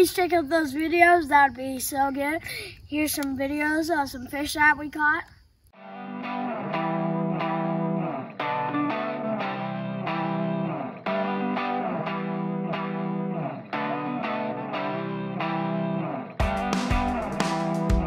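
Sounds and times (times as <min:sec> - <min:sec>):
plucked guitar music: 0:05.8 - 0:18.0.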